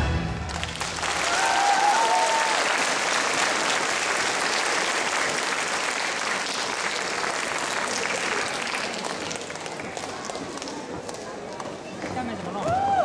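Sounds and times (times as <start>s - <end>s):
high cheer: 0.3s - 3.5s, 12.6s - 13.0s
audience applauding: 0.4s - 11.4s.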